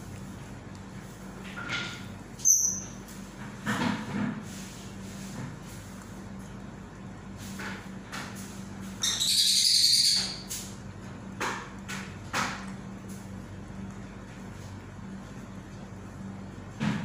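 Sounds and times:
parrot screeching: 0:09.0 - 0:10.4.

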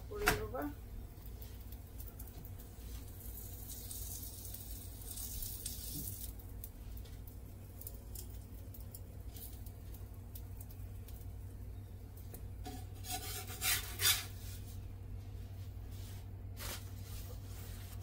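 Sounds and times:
steady low hum: 0:00.0 - 0:18.0
light crackles: 0:00.8 - 0:12.7
flatbread sizzling on a hot griddle: 0:00.9 - 0:14.9, 0:15.5 - 0:18.0.

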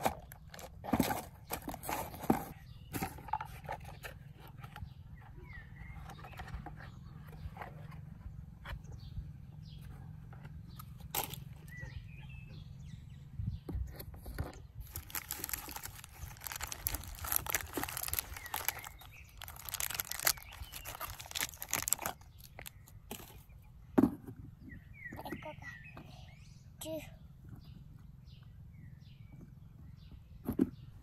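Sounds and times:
birds chirping faintly: 0:00.0 - 0:31.0
plastic bag crinkling: 0:14.8 - 0:22.9.

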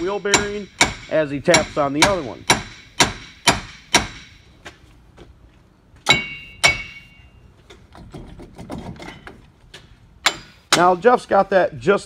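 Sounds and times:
hammer striking metal: 0:00.0 - 0:04.5, 0:06.0 - 0:07.3, 0:10.2 - 0:11.1.

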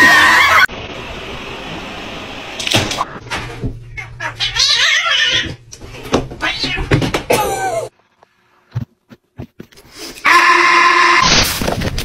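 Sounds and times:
cat meowing: 0:04.0 - 0:05.6.

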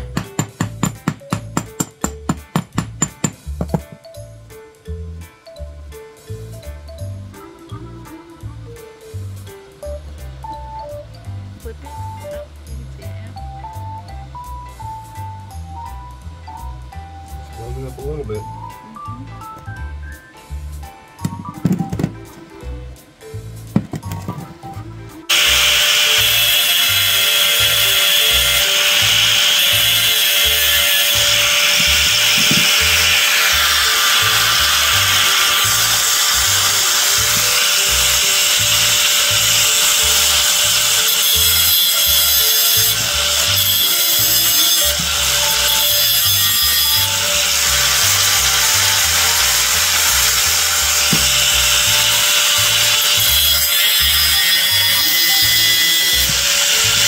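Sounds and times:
angle grinder grinding steel: 0:00.0 - 0:04.2, 0:25.3 - 0:57.0
music with bass beat: 0:00.0 - 0:25.3.

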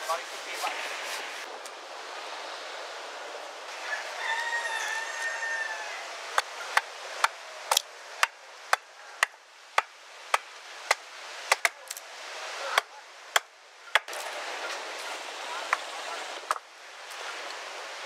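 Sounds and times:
hatchet chopping wood: 0:06.4 - 0:12.0, 0:12.8 - 0:14.2.

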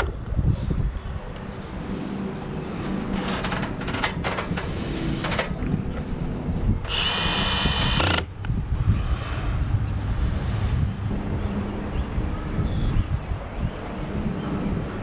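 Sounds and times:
cordless drill whining: 0:06.9 - 0:08.3.

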